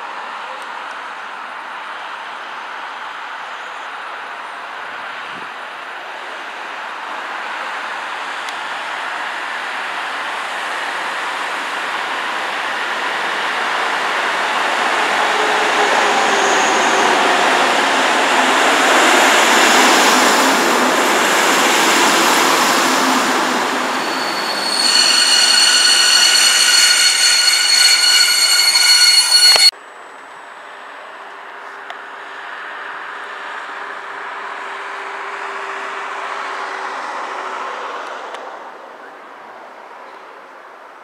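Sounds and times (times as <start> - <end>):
train passing rumble: 14.8 - 29.7
metallic wheel squeal: 23.5 - 29.7.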